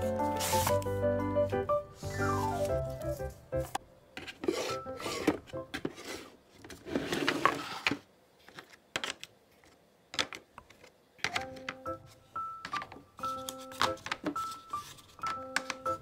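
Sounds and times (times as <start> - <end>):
background music: 0.0 - 4.0, 11.3 - 16.0
handling rubbing and scraping: 4.2 - 8.0.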